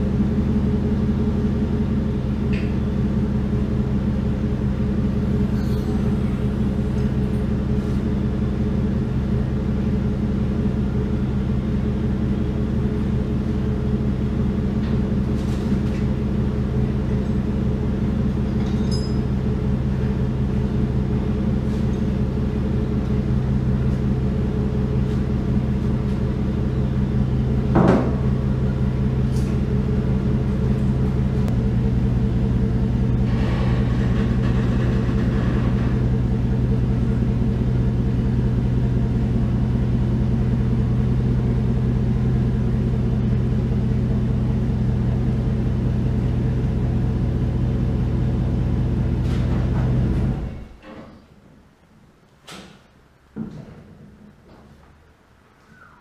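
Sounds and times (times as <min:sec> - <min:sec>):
low mechanical hum: 0:00.0 - 0:56.0.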